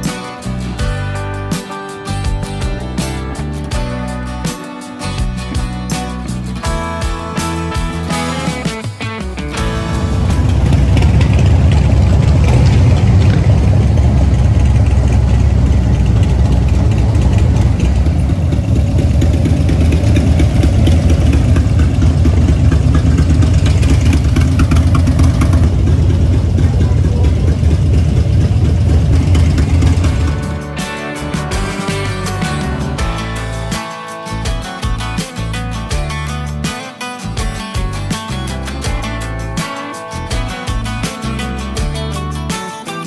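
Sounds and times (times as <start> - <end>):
motorcycles engine rumble: 7.4 - 36.6.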